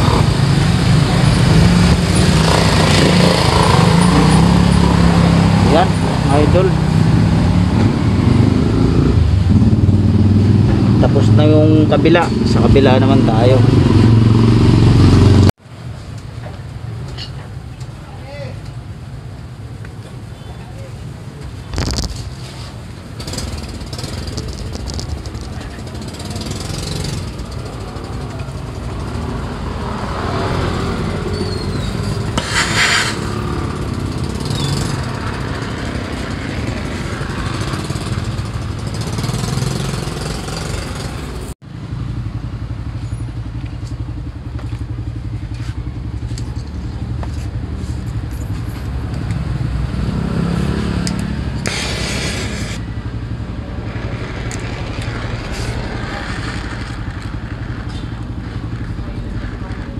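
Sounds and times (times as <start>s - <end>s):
torch hissing: 51.6s - 52.9s.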